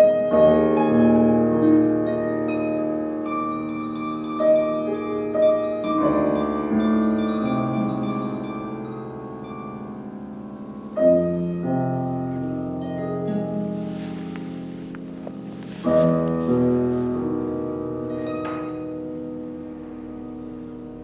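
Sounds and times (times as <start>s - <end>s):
piano chords: 0.0s - 21.0s
plucked harp notes: 12.3s - 20.7s.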